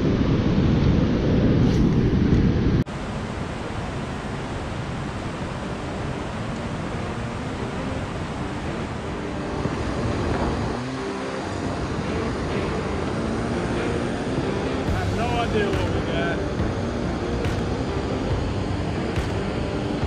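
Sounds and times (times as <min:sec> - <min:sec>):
rushing water below dam: 0:00.0 - 0:20.0
wind on microphone: 0:00.0 - 0:20.0
low rumble: 0:11.4 - 0:20.0.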